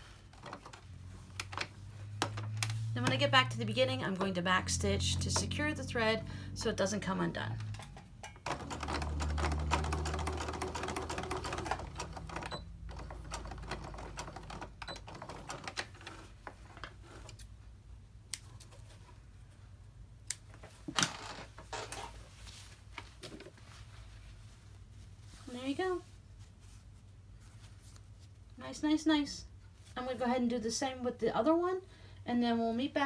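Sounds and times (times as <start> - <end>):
sewing machine stitching: 8.4 - 16.3.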